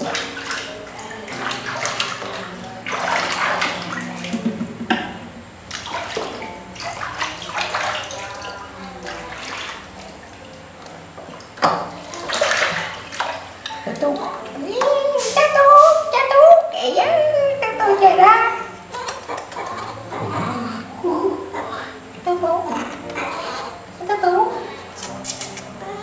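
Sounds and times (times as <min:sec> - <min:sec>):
water splashing in plastic basin: 0:00.0 - 0:15.9.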